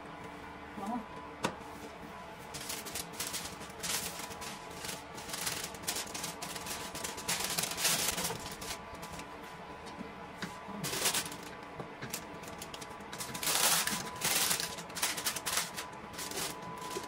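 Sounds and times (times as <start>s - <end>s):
paper rustling and crinkling: 1.9s - 9.3s, 10.8s - 11.5s, 12.1s - 17.0s.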